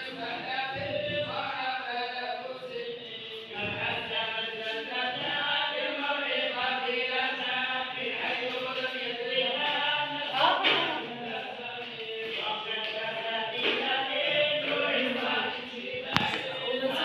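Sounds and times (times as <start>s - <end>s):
voices chanting together: 0.0s - 17.0s.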